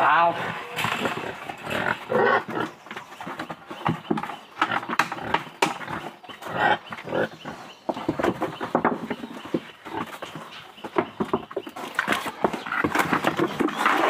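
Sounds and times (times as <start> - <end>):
pigs grunting: 0.0 - 11.2.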